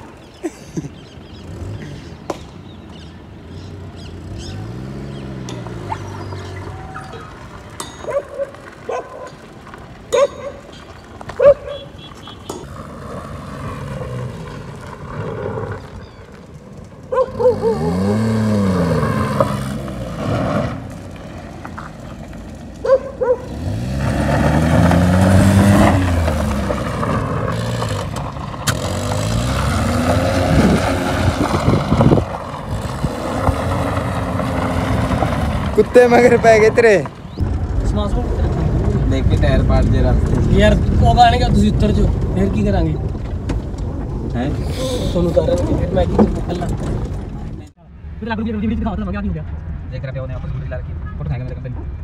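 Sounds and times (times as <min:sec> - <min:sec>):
car engine revving: 0:01.0 - 0:07.8, 0:12.5 - 0:47.8
dog barking: 0:08.0 - 0:09.4, 0:10.1 - 0:10.7, 0:11.4 - 0:11.9, 0:17.1 - 0:17.9, 0:22.8 - 0:23.5.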